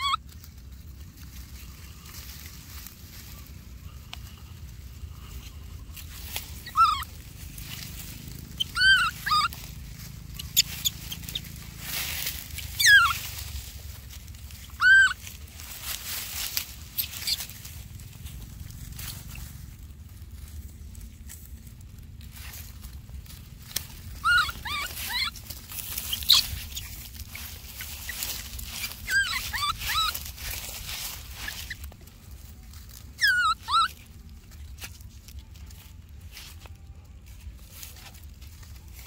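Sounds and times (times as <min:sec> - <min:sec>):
baby monkey high-pitched cries: 0:00.0 - 0:00.4, 0:05.2 - 0:19.8, 0:23.7 - 0:35.7
dry grass rustling: 0:00.0 - 0:39.0.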